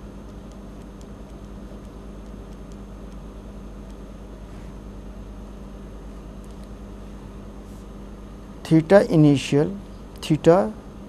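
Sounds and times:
electrical hum: 0.0s - 11.0s
faint ticks: 0.2s - 4.0s.

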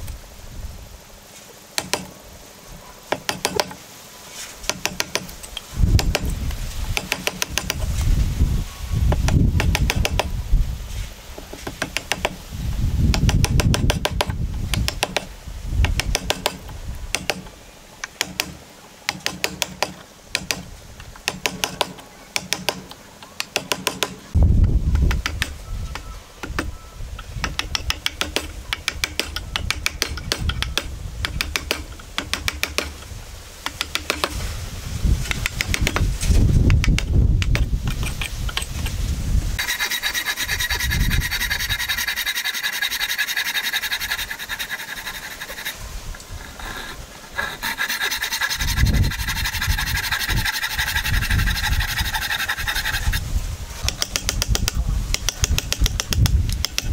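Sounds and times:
chisel scraping through wood: 39.6s - 56.9s.

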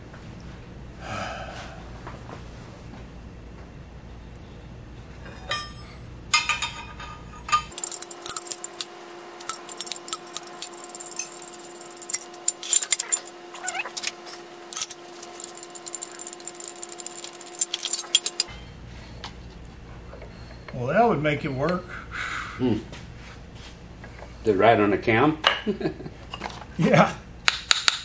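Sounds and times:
faint steady hum: 0.0s - 22.9s
metal tools clinking: 5.5s - 18.5s.

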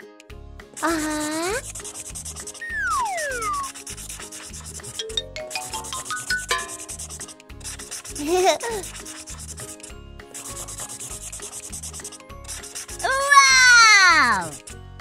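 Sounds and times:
background music with steady beat: 0.0s - 15.0s
marker scratching on paper: 0.8s - 5.0s, 5.9s - 13.7s.

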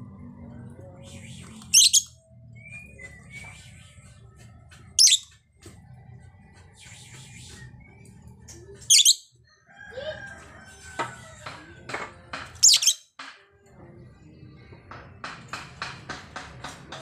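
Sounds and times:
lovebird twittering chatter: 1.7s - 2.1s, 5.0s - 5.2s, 8.9s - 9.3s, 12.6s - 13.0s.

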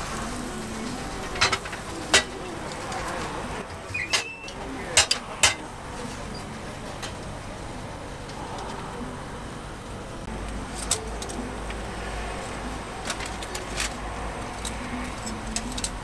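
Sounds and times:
metal tongs clicking on metal: 13.0s - 16.0s.

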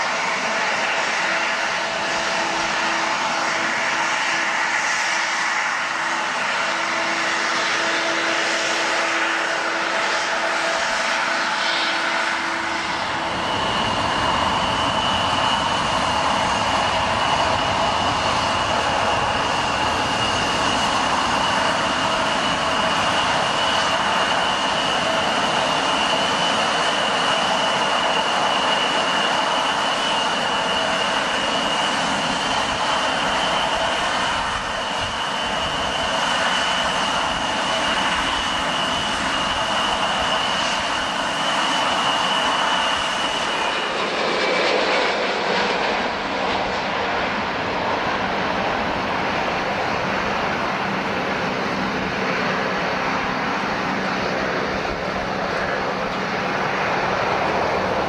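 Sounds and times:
high jet whine: 0.0s - 58.0s
jet engines at takeoff thrust: 0.0s - 58.0s.

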